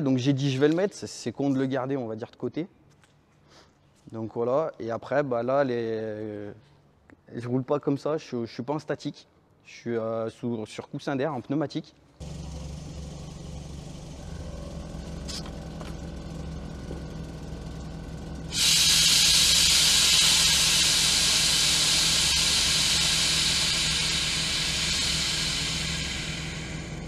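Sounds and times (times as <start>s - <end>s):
air suspension hissing: 12.2s - 27.0s
steady low hum: 12.2s - 27.0s.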